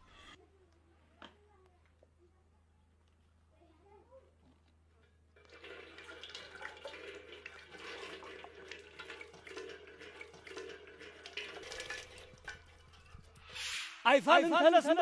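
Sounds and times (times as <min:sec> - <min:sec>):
water splashing into metal basin: 0:05.4 - 0:13.6.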